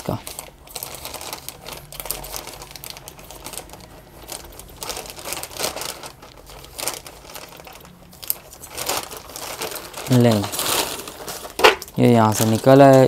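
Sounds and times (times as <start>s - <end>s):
plastic crinkling: 0.0s - 13.0s.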